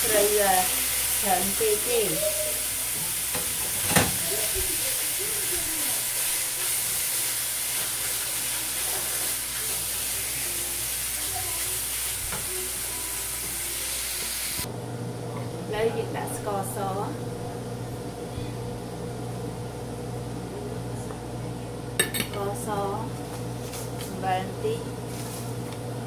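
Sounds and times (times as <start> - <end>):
meat sizzling in a frying pan: 0.0 - 14.7.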